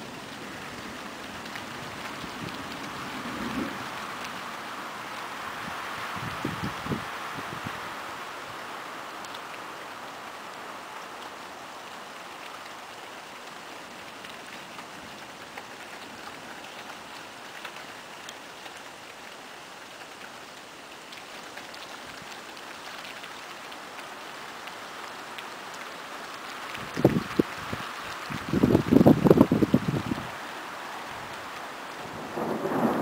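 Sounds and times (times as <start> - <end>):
rain hissing: 0.0 - 33.0
raindrops tapping: 0.1 - 5.3, 12.2 - 33.0.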